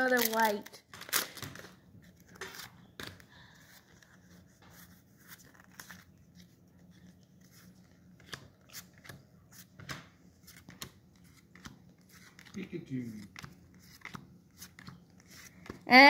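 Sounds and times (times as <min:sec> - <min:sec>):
trading cards snapping and sliding: 0:07.6 - 0:12.6, 0:13.2 - 0:15.8.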